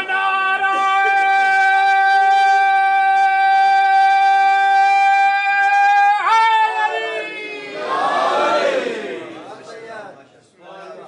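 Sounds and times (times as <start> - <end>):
man singing a long high note: 0.0 - 6.9.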